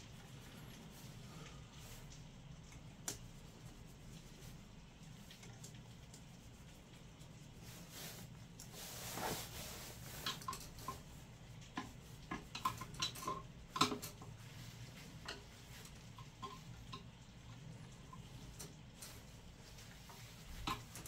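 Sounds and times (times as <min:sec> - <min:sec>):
soft rustle: 0:00.0 - 0:12.3, 0:14.2 - 0:16.7, 0:17.6 - 0:21.0
clicks and taps of wiring: 0:11.6 - 0:14.3.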